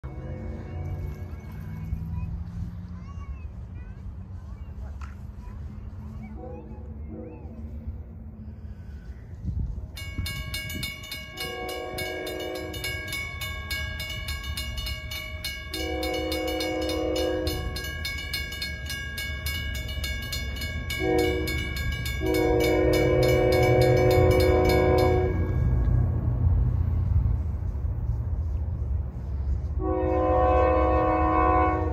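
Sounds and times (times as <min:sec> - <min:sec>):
crossing bell ringing rapidly: 0:00.0 - 0:02.3, 0:09.9 - 0:26.5
low locomotive rumble: 0:00.0 - 0:31.9
locomotive air horn blasts: 0:11.4 - 0:12.9, 0:15.7 - 0:17.8, 0:21.0 - 0:25.6, 0:29.8 - 0:31.9.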